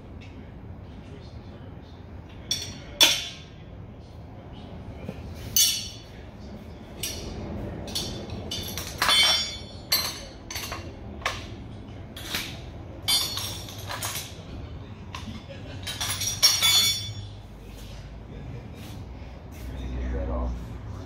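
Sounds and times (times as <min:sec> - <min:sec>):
metal tools clanking: 0:02.4 - 0:03.5, 0:05.4 - 0:06.2, 0:06.9 - 0:17.4.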